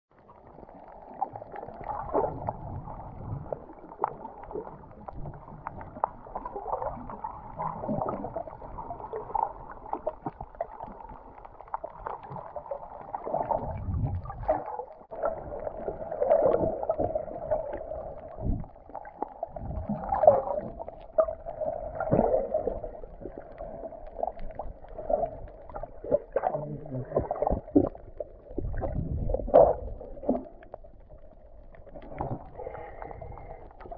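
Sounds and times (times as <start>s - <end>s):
water sloshing underwater: 0.1s - 33.9s.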